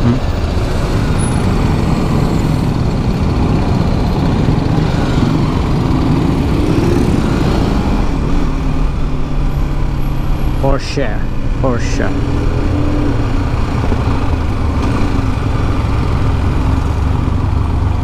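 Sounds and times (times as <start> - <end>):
motorcycle engine running: 0.0 - 10.6
street traffic: 0.0 - 18.0.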